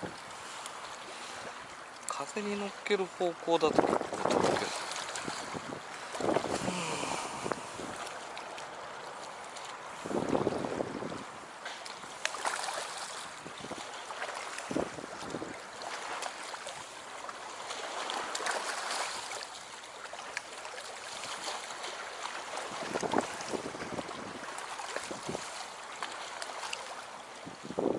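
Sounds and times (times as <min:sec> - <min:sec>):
water lapping at bank: 0:00.0 - 0:27.9
wind buffeting microphone: 0:03.6 - 0:08.6, 0:09.9 - 0:11.6, 0:13.3 - 0:13.9, 0:14.6 - 0:15.7, 0:22.6 - 0:25.6, 0:27.4 - 0:27.9.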